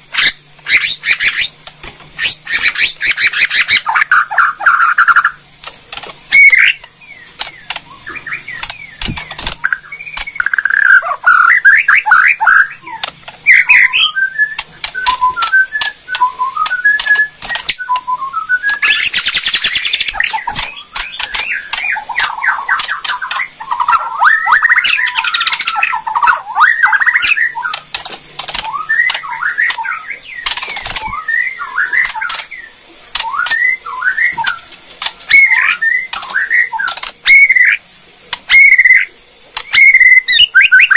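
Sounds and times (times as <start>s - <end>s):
harsh rattling bird chatter: 0.0s - 40.9s
bird hopping clicks: 5.6s - 11.0s, 13.0s - 23.5s
wing flutters: 5.6s - 11.4s, 14.5s - 23.5s, 27.6s - 32.5s
bird singing whistled phrases: 9.6s - 27.8s, 28.6s - 34.7s, 35.3s - 37.8s, 38.5s - 39.1s, 39.7s - 40.9s.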